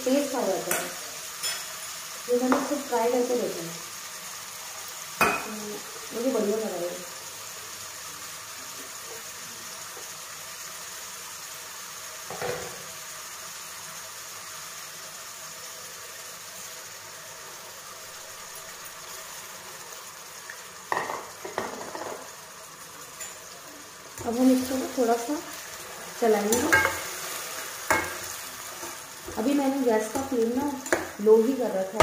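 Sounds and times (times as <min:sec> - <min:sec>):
masala sizzling in oil: 0:00.0 - 0:32.0
knock on pan: 0:05.2 - 0:05.5, 0:12.3 - 0:12.8, 0:20.9 - 0:22.2.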